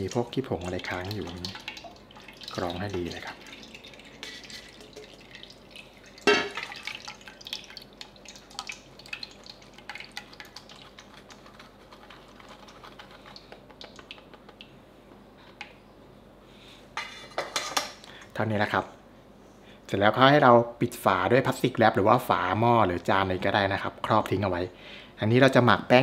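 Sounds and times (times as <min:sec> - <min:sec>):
whisk scraping in sieve: 0:10.1 - 0:13.5.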